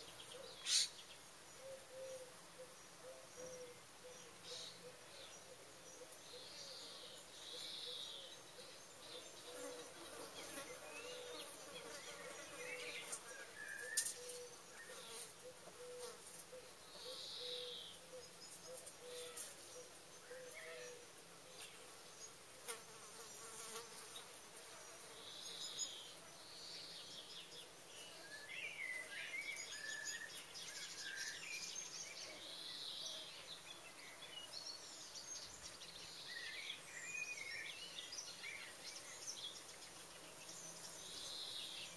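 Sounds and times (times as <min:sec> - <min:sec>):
birds calling: 0:00.0 - 0:11.8
flying insect buzzing: 0:21.9 - 0:25.6.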